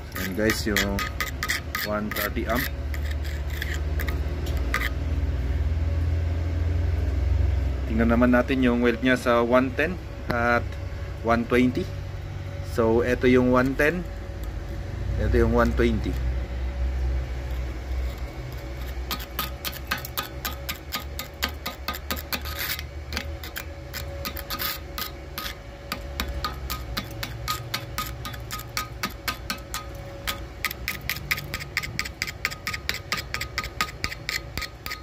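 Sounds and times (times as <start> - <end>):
chipping tool tapping metal: 0.0 - 4.9, 17.5 - 35.0.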